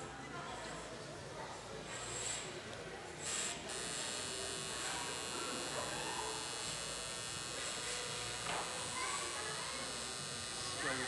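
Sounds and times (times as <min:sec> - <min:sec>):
tattoo machine buzzing: 0:03.2 - 0:11.0.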